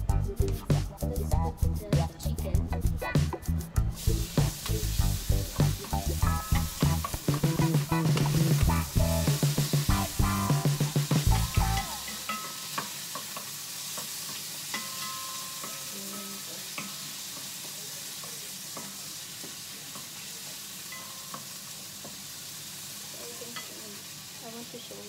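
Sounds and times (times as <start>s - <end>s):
food sizzling in frying pan: 0.8s - 25.0s
spatula scraping pan: 4.0s - 17.8s.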